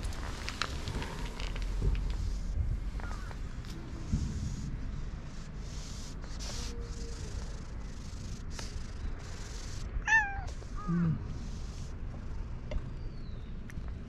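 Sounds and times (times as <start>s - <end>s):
cat meowing: 10.0s - 10.9s.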